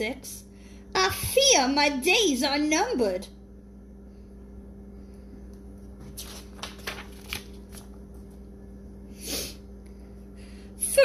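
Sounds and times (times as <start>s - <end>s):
paper page turning: 6.0s - 8.4s.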